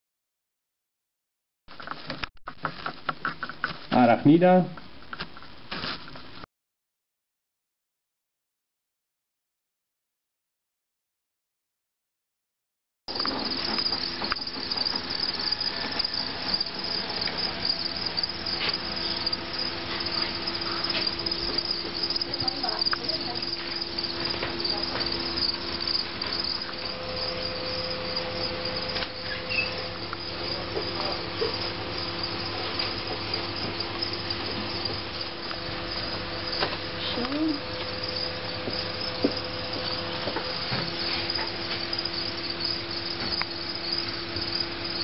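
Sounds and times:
low hum: 0:13.1 - 0:32.5
crickets chirping: 0:13.1 - 0:45.0.

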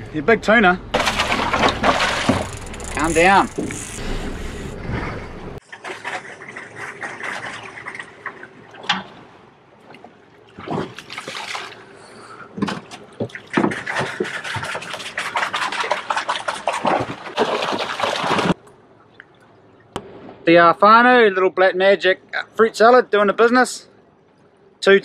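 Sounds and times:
water splashing and sloshing: 0:00.9 - 0:20.5.

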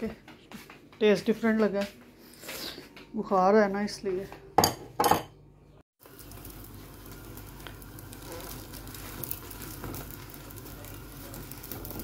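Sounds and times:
bread sizzling in a frying pan: 0:06.0 - 0:12.0.

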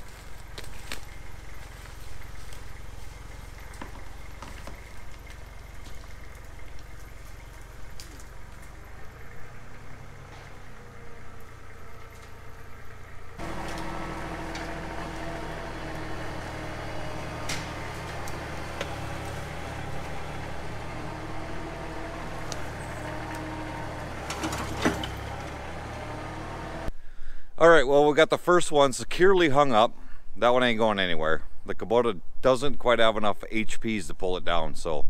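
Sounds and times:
tractor diesel engine running: 0:00.0 - 0:27.0
wood snapping: 0:00.1 - 0:02.8, 0:03.4 - 0:08.8, 0:13.4 - 0:25.5.

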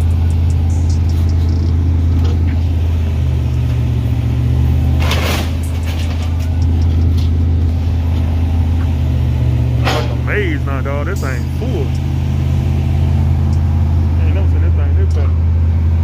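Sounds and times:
vehicle engine droning: 0:00.0 - 0:16.0.

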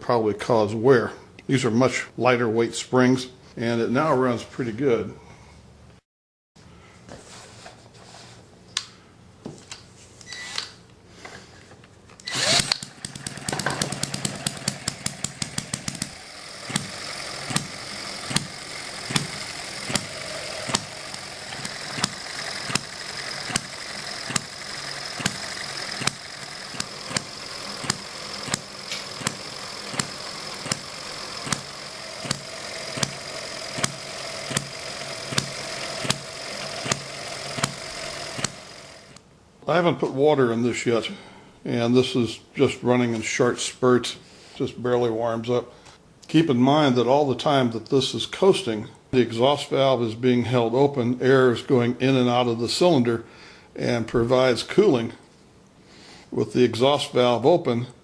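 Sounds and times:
flywheel whir and valve clatter: 0:12.2 - 0:39.2
small engine firing pops: 0:12.3 - 0:38.6.

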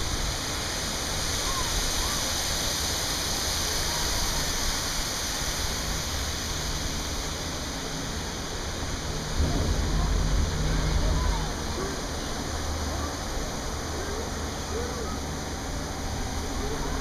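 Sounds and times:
water falling: 0:00.7 - 0:17.0
low rumble: 0:09.0 - 0:13.9.

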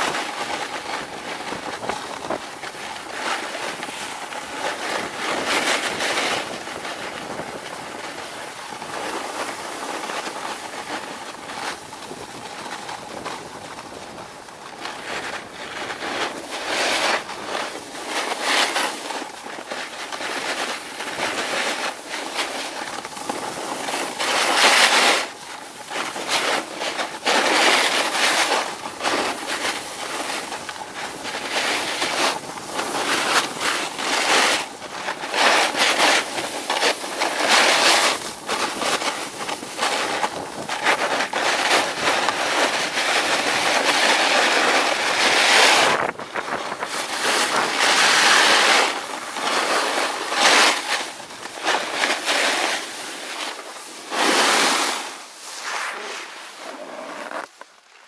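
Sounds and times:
snowboard edges scraping: 0:00.0 - 0:58.0
snowboard hissing on snow: 0:26.0 - 0:58.0.

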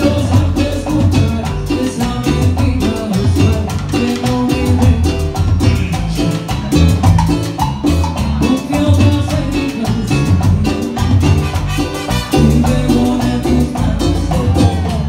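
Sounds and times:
bass: 0:00.0 - 0:15.0
congas: 0:00.0 - 0:15.0
drum kit: 0:00.0 - 0:15.0
horns holding notes: 0:11.2 - 0:12.9.

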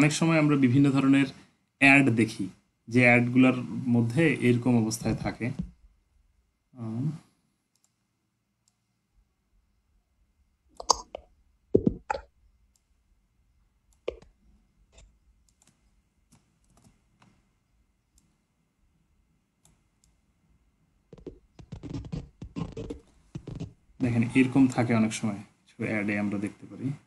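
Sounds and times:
mouse and keyboard clicks: 0:10.8 - 0:11.3, 0:13.9 - 0:17.4.

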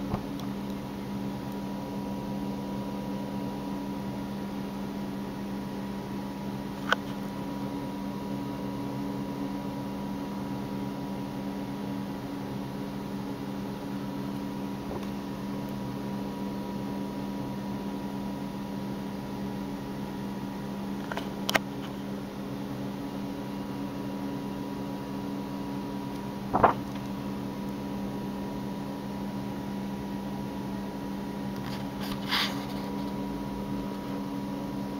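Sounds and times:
electrical hum: 0:00.0 - 0:34.9
book pages turning: 0:26.5 - 0:27.0.

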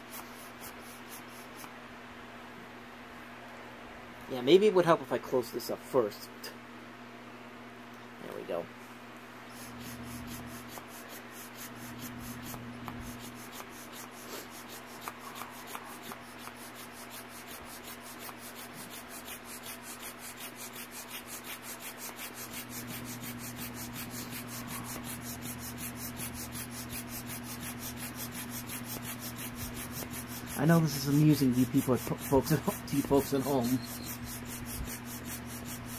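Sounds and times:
hand air pump strokes: 0:09.5 - 0:35.9.

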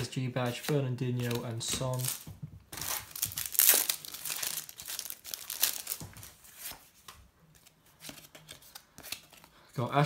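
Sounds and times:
wrapper tearing and crinkling: 0:02.8 - 0:06.7.

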